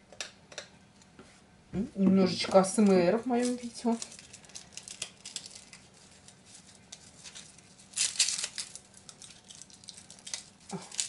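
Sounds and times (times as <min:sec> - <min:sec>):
garlic skins crackling and tearing: 0:02.9 - 0:11.0.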